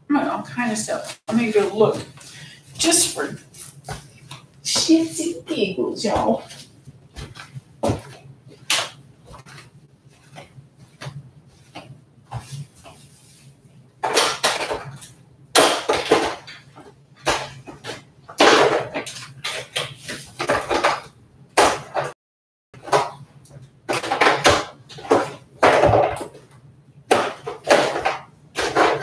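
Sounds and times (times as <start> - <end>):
objects clattering and scraping: 6.0 - 22.2, 22.8 - 29.0.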